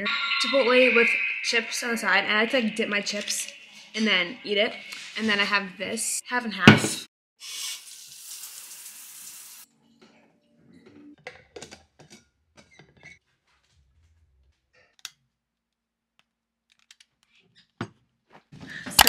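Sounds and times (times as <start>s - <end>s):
shower water running: 7.4s - 9.7s.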